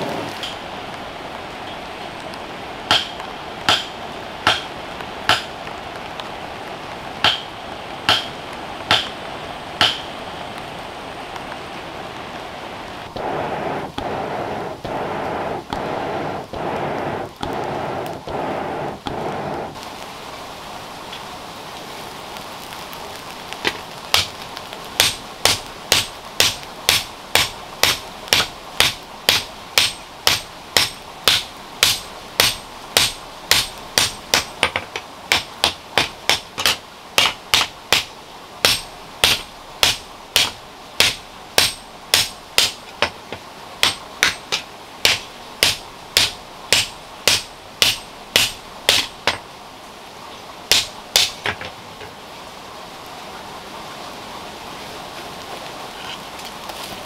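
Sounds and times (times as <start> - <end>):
hammer ringing on hot iron: 2.9 - 4.7, 7.2 - 7.5, 8.1 - 8.3, 25.0 - 34.5, 35.3 - 43.2, 43.8 - 49.4.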